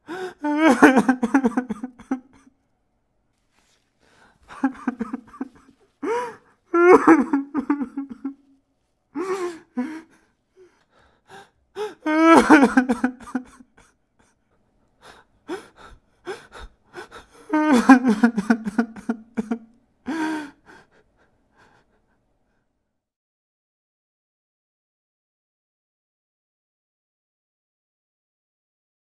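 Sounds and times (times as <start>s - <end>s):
person sobbing: 0.0s - 2.6s, 4.4s - 8.5s, 9.1s - 14.4s, 15.0s - 22.0s
gasping breaths: 4.0s - 7.3s, 15.0s - 17.9s, 20.1s - 22.2s.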